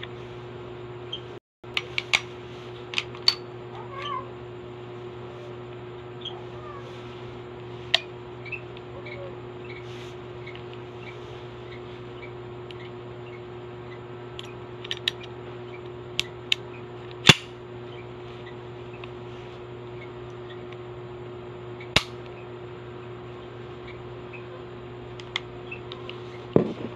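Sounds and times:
pistol metal clicks and snaps: 0:14.4 - 0:15.3, 0:17.2 - 0:17.5.

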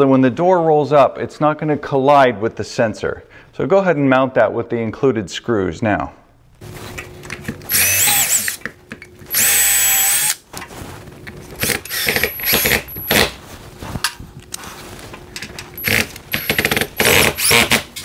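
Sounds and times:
cordless drill driving screws: 0:07.7 - 0:08.6, 0:09.3 - 0:10.4, 0:11.6 - 0:13.3, 0:15.8 - 0:18.0.

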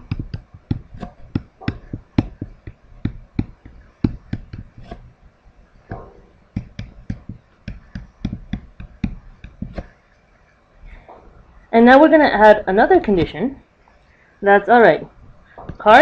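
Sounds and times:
stylus tapping on tablet: 0:00.0 - 0:05.1, 0:05.9 - 0:09.9.

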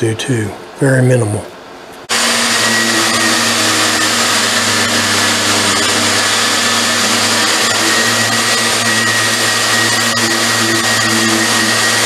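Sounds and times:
orbital sander on metal: 0:02.1 - 0:12.0.

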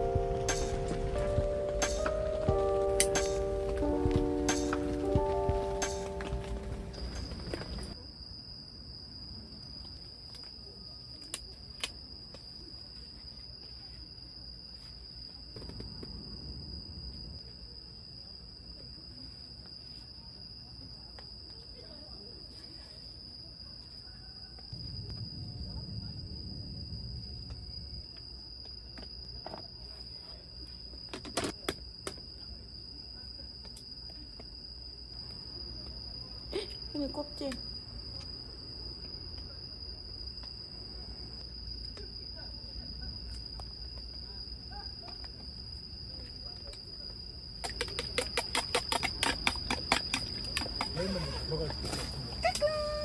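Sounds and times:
music: 0:00.0 - 0:07.9
crickets chirring: 0:00.0 - 0:53.0.

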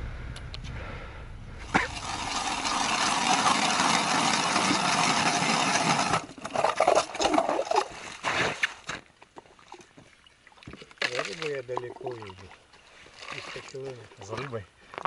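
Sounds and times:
ice auger grinding through ice: 0:01.6 - 0:08.6.

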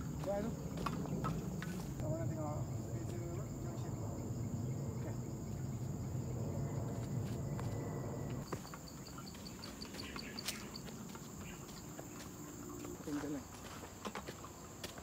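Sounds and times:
footsteps on dirt trail: 0:00.0 - 0:02.2, 0:06.9 - 0:15.0
insects droning: 0:00.0 - 0:15.0.

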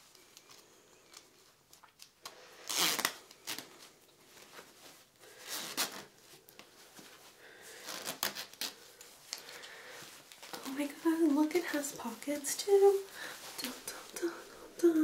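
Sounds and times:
fabric rustling: 0:00.0 - 0:15.0
metal zipper rasps: 0:02.6 - 0:03.7.

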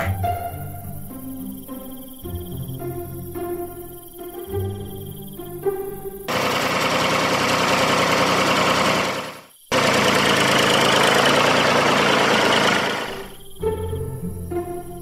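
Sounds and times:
tractor engine running: 0:06.2 - 0:13.4.

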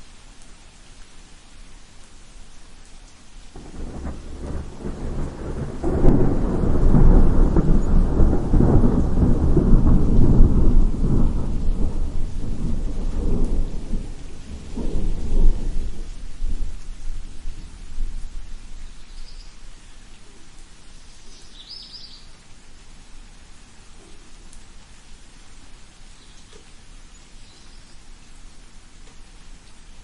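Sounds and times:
steady rain: 0:00.0 - 0:30.0
rolling thunder: 0:03.6 - 0:19.1.

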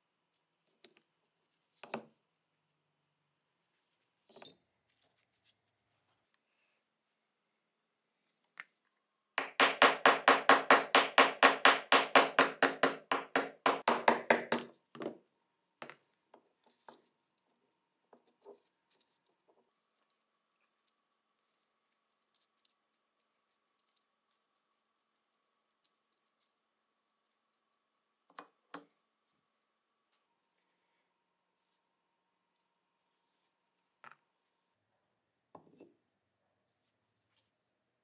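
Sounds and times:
hammer tapping a pin punch: 0:09.4 - 0:14.7.

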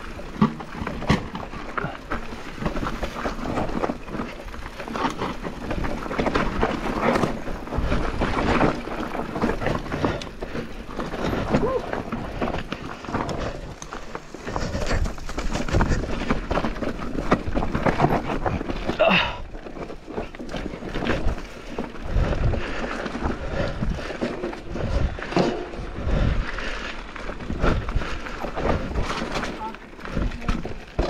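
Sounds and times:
bike knocking and rattling: 0:00.0 - 0:31.0
bike tyres on dirt and rock: 0:00.0 - 0:31.0.

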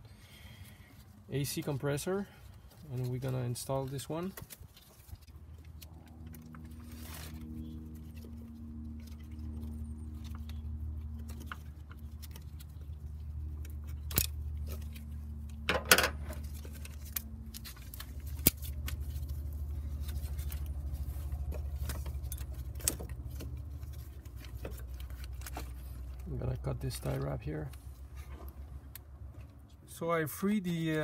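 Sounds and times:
metal clinks and knocks: 0:15.6 - 0:17.0.

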